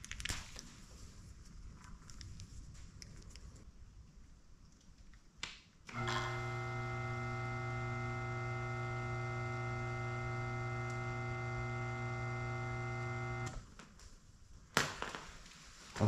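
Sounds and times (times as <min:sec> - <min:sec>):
electric motor humming: 0:05.9 - 0:13.6.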